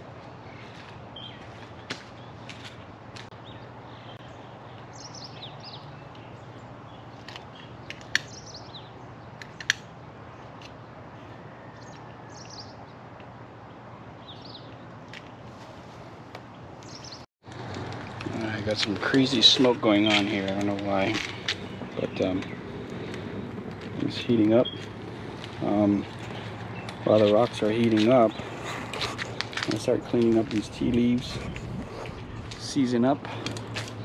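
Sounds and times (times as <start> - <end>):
birds chirping: 0.2 - 17.3, 18.2 - 34.0.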